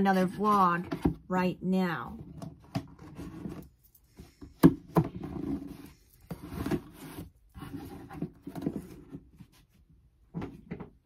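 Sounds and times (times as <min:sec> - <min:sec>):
objects knocking and rustling: 0:02.2 - 0:11.0.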